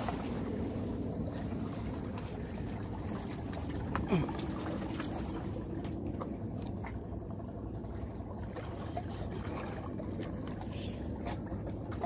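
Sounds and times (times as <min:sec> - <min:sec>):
sea water washing against concrete: 0:00.0 - 0:07.2.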